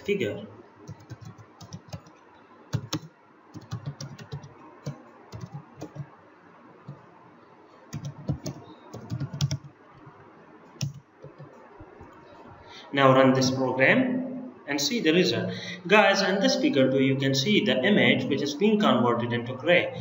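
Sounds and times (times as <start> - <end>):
computer keyboard typing: 0.8 - 6.1, 7.9 - 9.7, 10.8 - 12.2.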